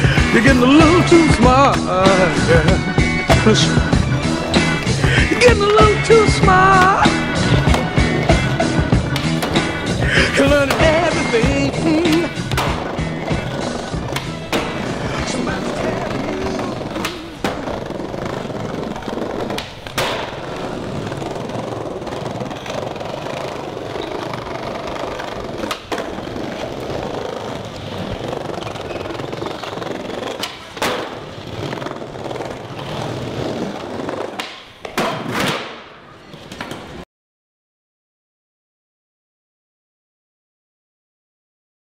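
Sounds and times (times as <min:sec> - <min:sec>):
skateboard wheels rolling on tiles: 0:00.0 - 0:37.0
skateboard knocks: 0:10.4 - 0:17.7.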